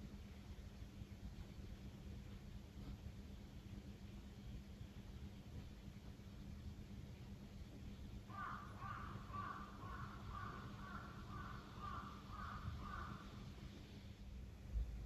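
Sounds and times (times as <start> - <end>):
crow cawing: 8.3 - 13.5.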